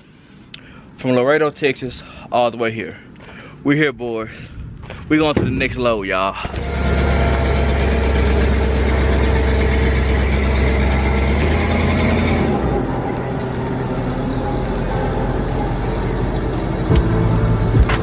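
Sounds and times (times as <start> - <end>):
forklift engine humming: 5.8 - 18.0.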